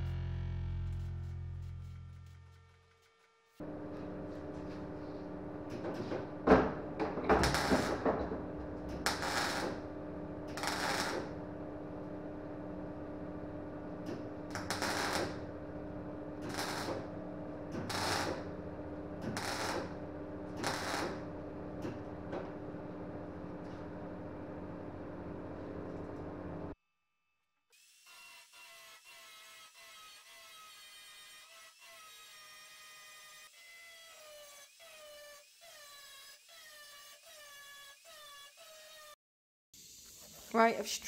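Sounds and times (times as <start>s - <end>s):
steady electrical hum: 3.6s - 26.8s
welder crackling bursts: 7.4s - 8.1s, 8.8s - 9.8s, 10.4s - 11.5s, 14.0s - 15.5s, 16.4s - 17.0s, 17.9s - 18.5s, 19.2s - 21.2s.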